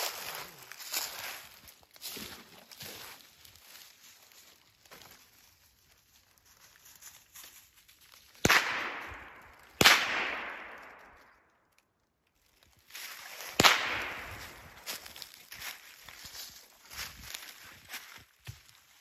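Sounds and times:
echoing gunshots: 8.4s - 11.3s, 13.6s - 14.8s.

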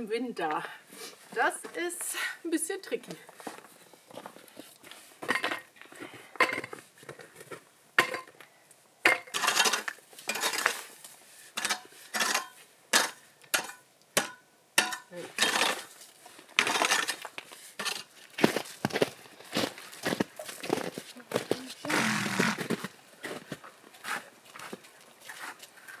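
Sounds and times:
pickaxe knocking and scraping ice: 9.1s - 10.9s, 11.6s - 15.9s, 16.6s - 19.0s.

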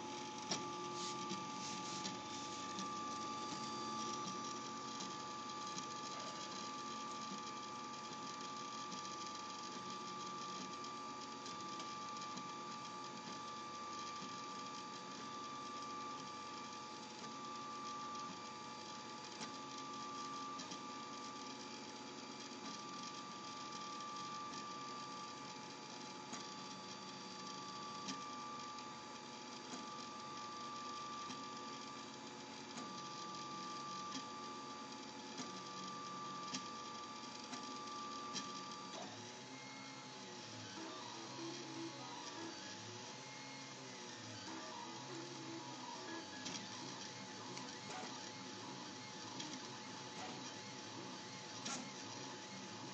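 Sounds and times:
steady hum: 0.0s - 21.6s.

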